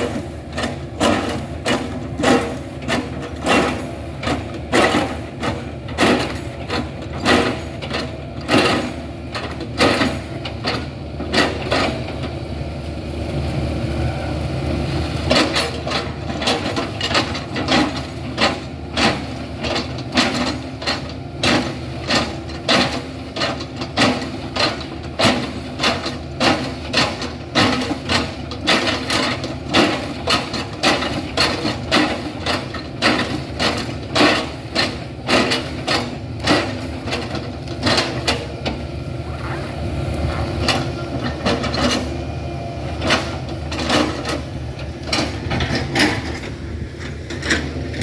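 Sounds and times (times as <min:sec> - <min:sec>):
diesel engine running: 0:00.0 - 0:48.0.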